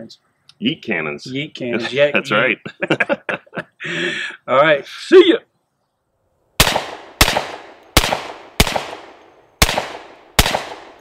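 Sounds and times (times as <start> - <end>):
carbine gunshots with echo: 6.6 - 11.0.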